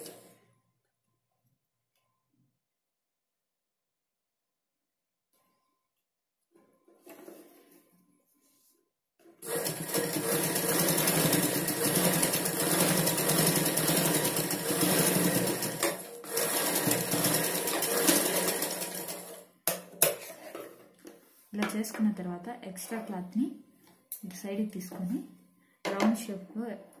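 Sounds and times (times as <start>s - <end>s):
sewing machine running: 9.4s - 19.4s.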